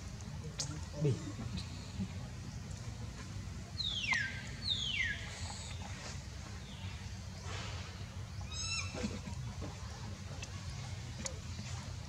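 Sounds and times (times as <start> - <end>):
low steady hum: 0.0 - 12.0
baby monkey calls: 8.5 - 9.0.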